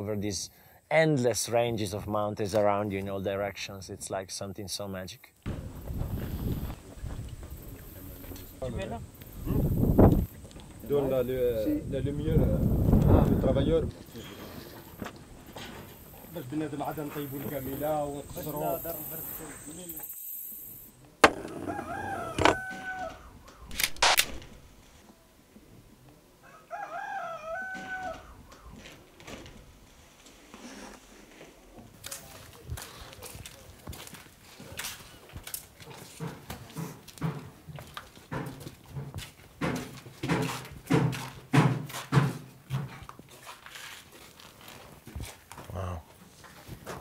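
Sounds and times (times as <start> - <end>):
sharp knocks: 21.2 - 21.8, 22.4 - 22.6
rooster crowing: 21.4 - 23.4, 26.4 - 28.4.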